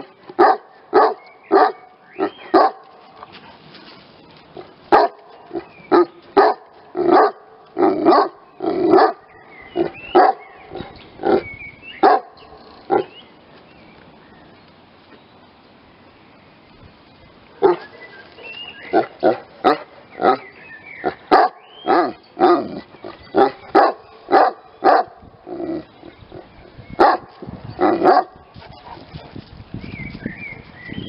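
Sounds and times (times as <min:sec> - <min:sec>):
dog barking: 0:00.4 - 0:02.8, 0:04.9 - 0:05.2, 0:05.9 - 0:07.4, 0:08.0 - 0:09.2, 0:10.1 - 0:10.4, 0:12.0 - 0:13.1, 0:21.3 - 0:22.6, 0:23.4 - 0:25.1, 0:27.0 - 0:27.3, 0:28.0 - 0:28.3.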